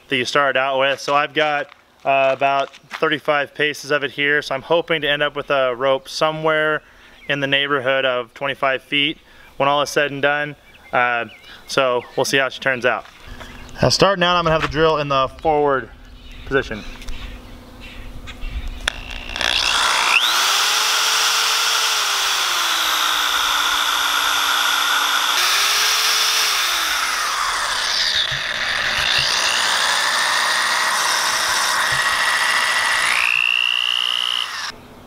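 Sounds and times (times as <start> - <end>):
electric drill whining: 18.8 - 34.8.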